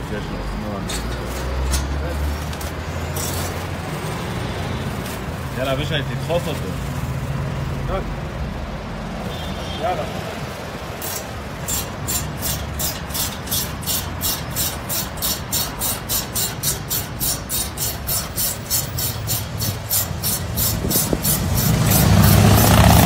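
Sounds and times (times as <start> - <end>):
ratchet wrench clicking: 11.0 - 22.8.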